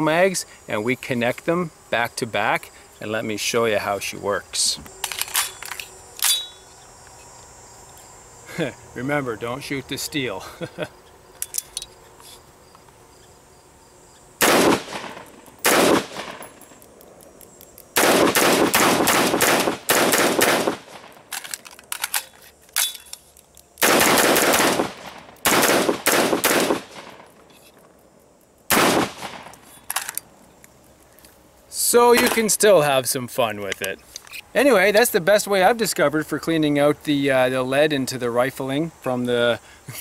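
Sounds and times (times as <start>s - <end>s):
magazine clicks: 4.9s - 6.5s, 14.4s - 31.4s
rifle shots: 14.4s - 16.6s, 18.0s - 21.3s, 23.8s - 27.3s, 28.7s - 29.6s.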